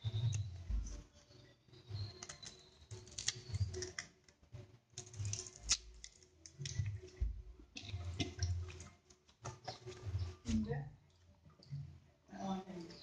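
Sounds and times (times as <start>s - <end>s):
dull low thumps: 0.5s - 1.0s, 7.2s - 8.5s.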